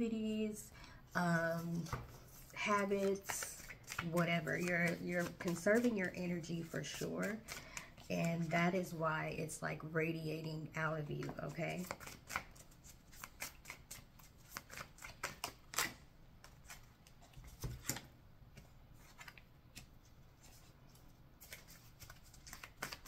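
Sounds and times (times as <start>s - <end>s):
cards being shuffled: 1.7s - 6.0s, 11.2s - 20.7s, 21.4s - 23.0s.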